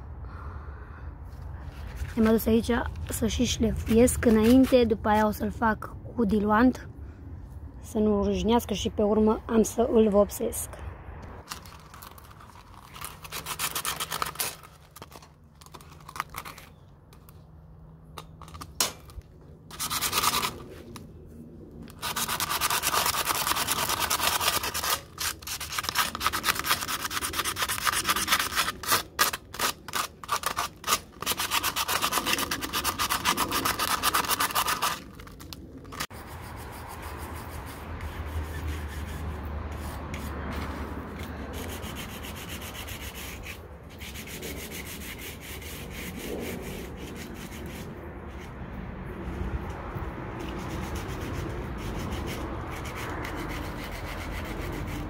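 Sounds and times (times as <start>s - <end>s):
sanding sponge rasping on metal: 22.0s - 35.2s, 36.0s - 48.0s, 50.4s - 55.0s.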